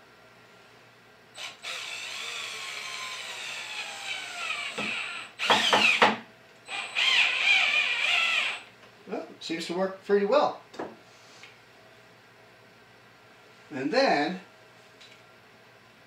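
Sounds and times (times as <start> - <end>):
cordless drill motor whining: 1.4 - 8.7.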